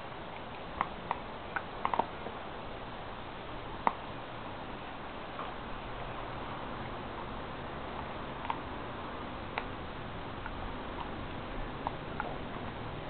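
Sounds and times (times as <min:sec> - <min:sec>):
dog teeth crunching on bone: 0:00.3 - 0:02.4, 0:10.3 - 0:12.8.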